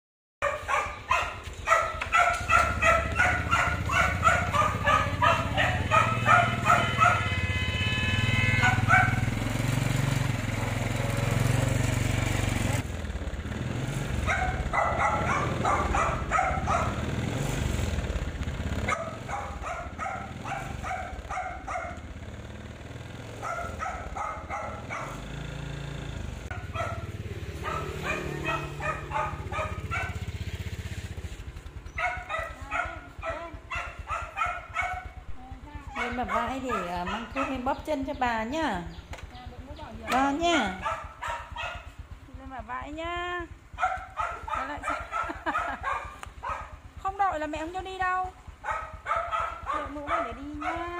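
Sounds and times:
dog barking: 0.4 - 9.4, 10.5 - 10.9, 14.2 - 17.1, 18.8 - 22.2, 23.3 - 25.3, 26.5 - 30.4, 31.8 - 37.9, 40.0 - 42.1, 43.7 - 46.9, 48.2 - 50.9.

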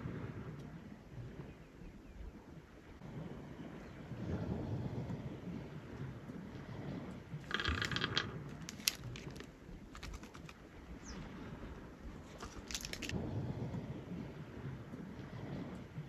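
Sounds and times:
low rumble of wind and sea: 0.0 - 16.0
rustle: 7.4 - 14.3
nuts clicking on wooden board: 7.5 - 10.6.

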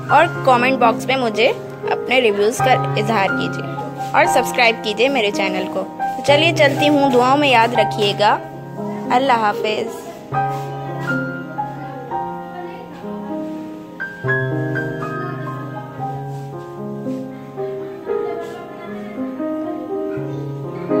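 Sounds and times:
slow instrumental music: 0.0 - 21.0.

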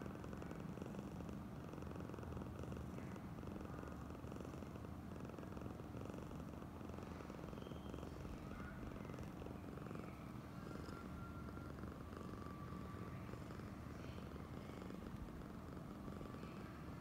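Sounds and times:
cat purring: 0.0 - 17.0.

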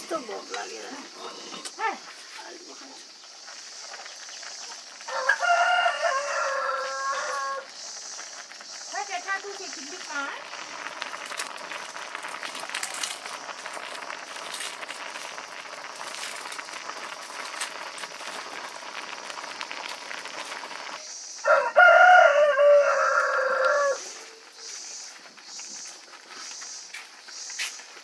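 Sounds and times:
pot of milk boiling: 0.0 - 28.0
rooster crowing: 5.0 - 7.7, 21.4 - 24.4.

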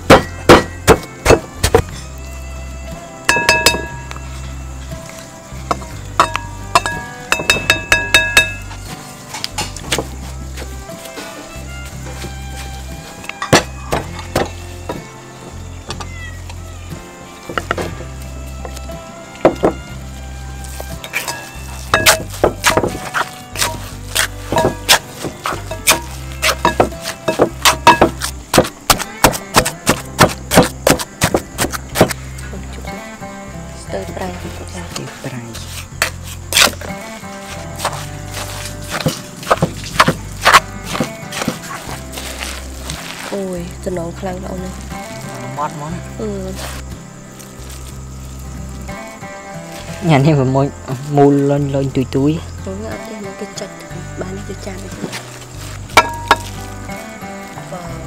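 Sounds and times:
background music: 0.0 - 58.0
utensil clinking against ringing dish: 3.3 - 4.2, 6.2 - 8.8
knife chopping on wooden board: 22.0 - 32.2, 37.8 - 41.8.

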